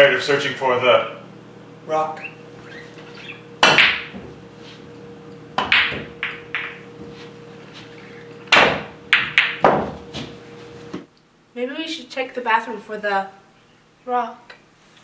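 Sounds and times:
pool balls clacking: 2.7 - 4.4, 5.5 - 11.1.

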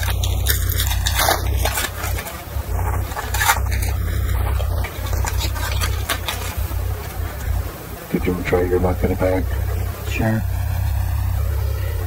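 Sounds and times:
card wrappers rustling and crinkling: 0.0 - 7.7
low electrical hum: 0.0 - 12.0.

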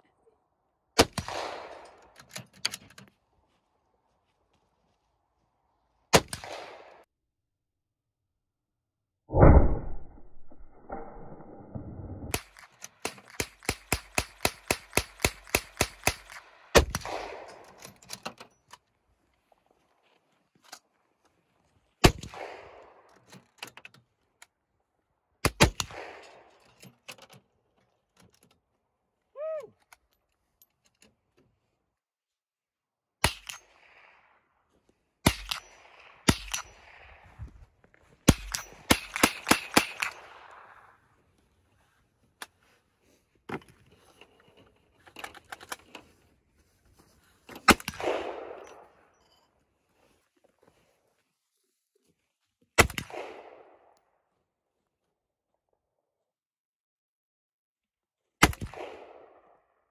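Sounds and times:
rifle gunfire: 1.0 - 2.2, 6.1 - 7.0, 12.3 - 17.7, 22.0 - 23.1, 38.2 - 41.0, 47.7 - 48.8, 52.8 - 53.9, 58.4 - 59.6.

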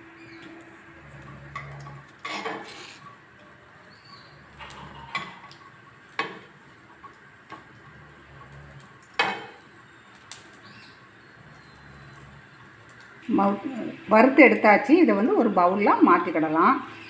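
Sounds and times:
food frying: 0.0 - 17.0
spoon knocking and scraping pan: 1.4 - 2.9, 4.6 - 6.8, 9.1 - 9.6.

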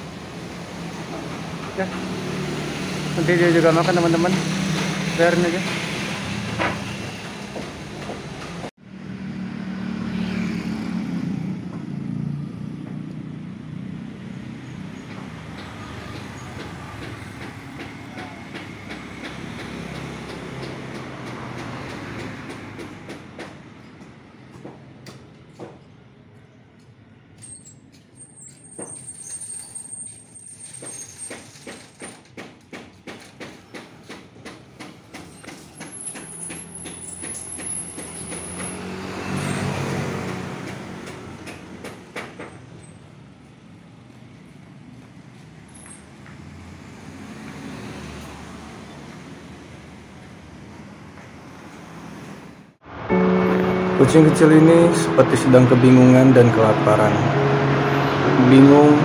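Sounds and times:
vehicle engine passing by: 1.7 - 18.0, 37.8 - 41.8, 51.4 - 59.0.

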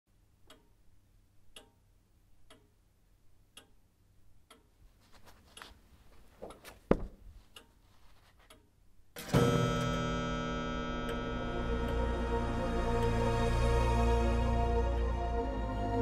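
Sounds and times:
clock ticking: 0.1 - 4.9, 5.5 - 13.2
paper pages turning: 5.0 - 8.5
book cover thud: 6.4 - 7.2.

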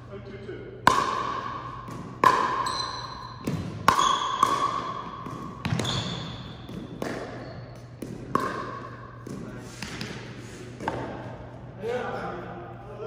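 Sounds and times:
ball hits with ringing ping: 0.8 - 1.5, 2.2 - 7.4.

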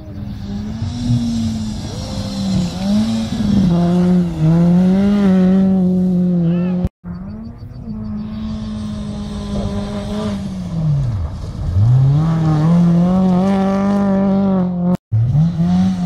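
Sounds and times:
another engine: 0.0 - 16.0
rally car engine revving: 0.0 - 16.0
car sliding on gravel: 0.1 - 6.2, 8.1 - 14.5.

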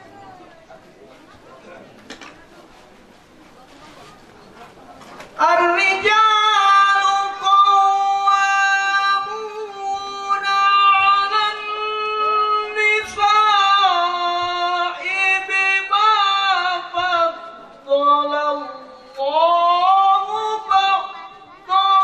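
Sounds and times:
man chanting through microphone: 5.4 - 22.0.

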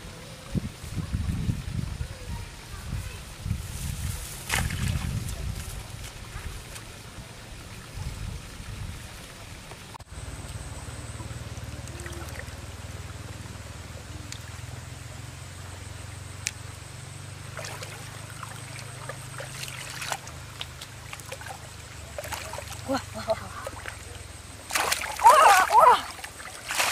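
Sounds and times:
muddy water sloshing and splashing: 3.9 - 8.3, 11.5 - 13.2, 17.3 - 26.9
steady low hum: 10.0 - 26.9.

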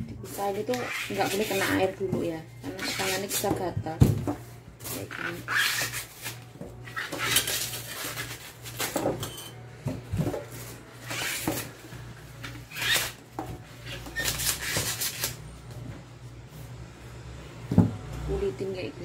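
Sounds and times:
stalks being peeled by hand: 13.8 - 15.5.

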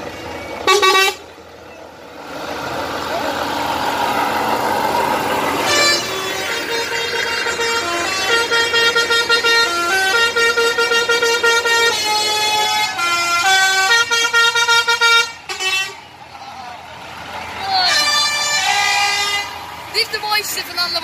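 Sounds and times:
musical truck air horn: 0.6 - 1.2, 5.6 - 16.1, 17.9 - 19.6.

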